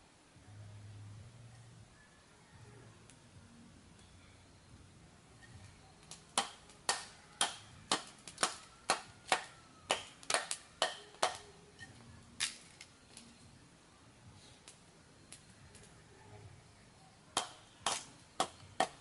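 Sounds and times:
machete chopping wooden stick: 6.0 - 11.4, 17.4 - 19.0.

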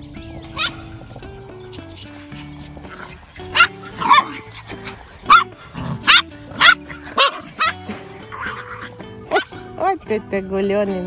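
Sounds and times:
background music: 0.0 - 11.0
small dogs barking: 0.4 - 1.0, 2.3 - 9.8.

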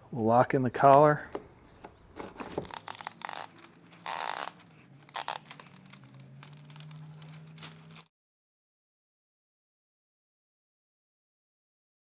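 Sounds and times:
masking paper crinkling: 2.0 - 8.1
paper tearing: 2.2 - 8.1.

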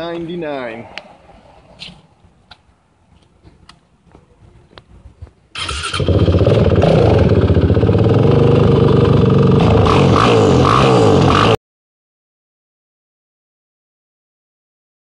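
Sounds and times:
atv engine starting and running: 5.5 - 11.6.

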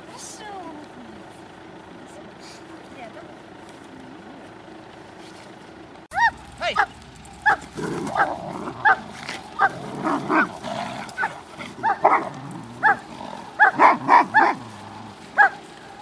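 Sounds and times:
dog barking sharply: 6.1 - 10.5, 11.2 - 13.0, 13.6 - 14.6, 15.4 - 15.6.

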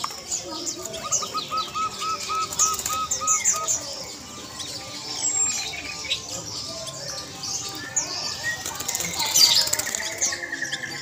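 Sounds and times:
small birds chirping: 0.0 - 11.0
dove cooing: 1.0 - 3.9.

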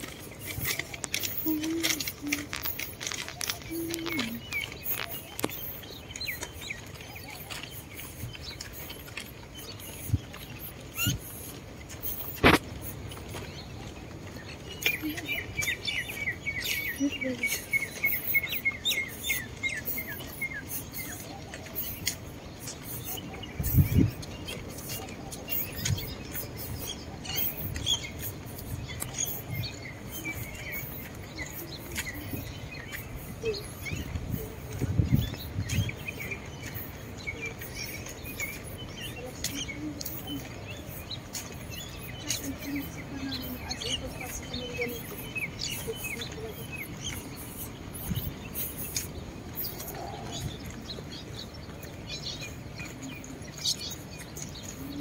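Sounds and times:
footsteps on paving: 0.0 - 55.0
rustle of walking: 0.0 - 55.0
small birds chirping: 0.0 - 55.0.

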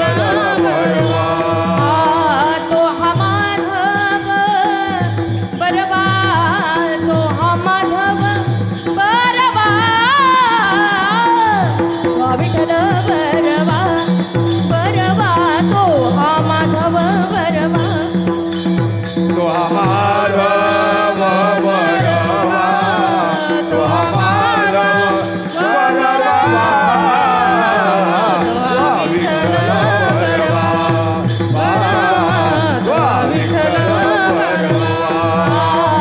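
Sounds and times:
drum beat: 18.8 - 36.0
wavering sung melody: 19.3 - 36.0.

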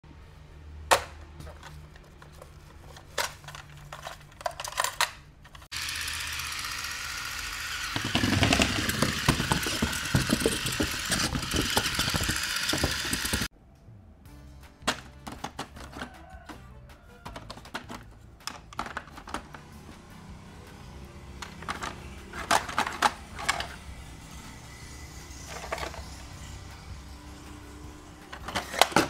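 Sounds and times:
plastic toy cars clicking: 0.9 - 6.0, 6.6 - 13.5, 17.2 - 19.7, 21.4 - 23.8, 25.5 - 26.2, 28.3 - 29.0
toy wheels clattering on a board: 2.9 - 13.5, 21.4 - 23.8, 25.3 - 26.4
toy car motor whir: 5.6 - 13.5, 21.4 - 29.0.

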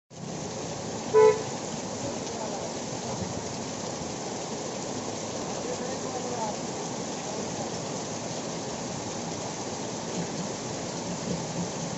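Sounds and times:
heavy rain on a street: 0.1 - 11.9
vehicle horn toot: 1.1 - 1.5.

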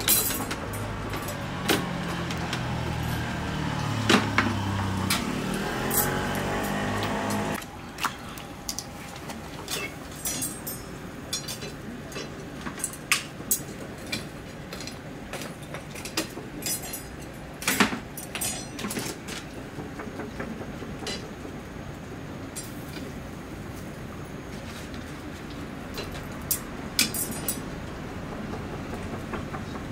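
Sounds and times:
skewers and utensils clinking: 0.0 - 19.5, 25.9 - 27.7.

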